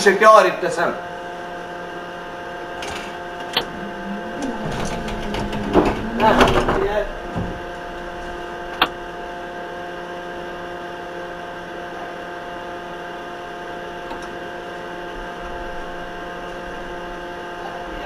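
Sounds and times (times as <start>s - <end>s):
steady electrical hum: 0.0s - 11.5s.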